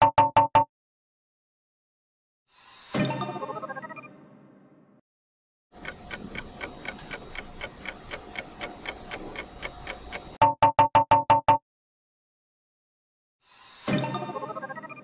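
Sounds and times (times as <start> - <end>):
clock-like ticking: 5.8 - 10.5.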